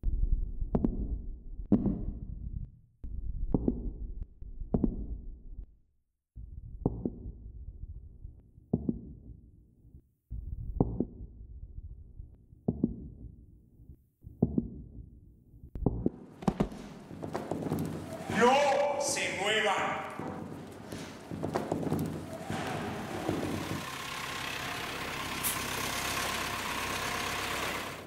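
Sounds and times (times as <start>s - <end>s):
muffled heartbeat thuds: 8.2s - 9.4s, 10.3s - 13.4s, 14.2s - 18.0s.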